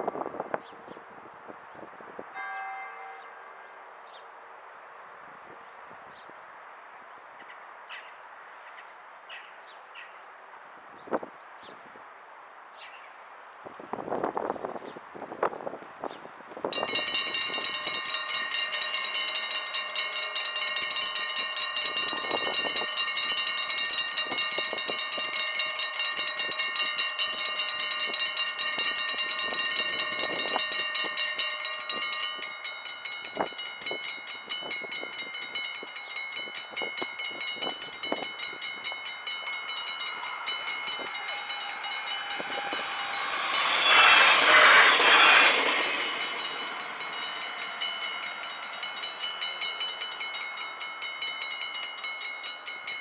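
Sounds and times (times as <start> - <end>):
electric train passing: 16.7 - 53.0
level crossing warning bells: 16.8 - 53.0.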